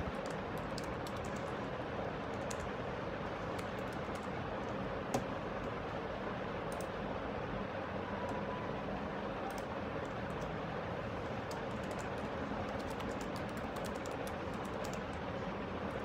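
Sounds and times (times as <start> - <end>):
keyboard typing clicks: 0.0 - 1.5, 2.3 - 2.7, 3.5 - 4.3, 11.5 - 15.2.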